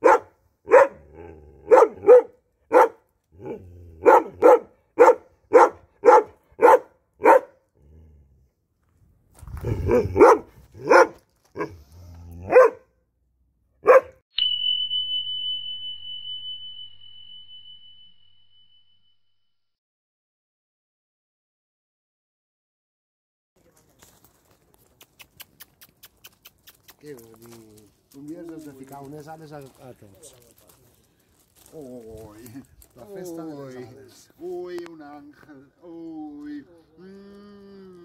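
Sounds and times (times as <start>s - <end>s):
dog barking: 0.0s - 7.6s, 9.8s - 11.8s, 12.4s - 13.0s, 13.8s - 14.2s
bell-like chime: 14.3s - 19.6s.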